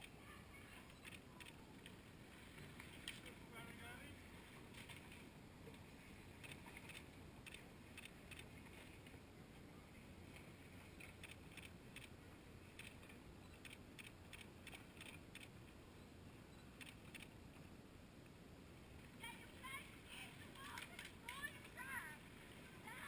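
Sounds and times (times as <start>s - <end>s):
low steady hum: 0.0s - 23.0s.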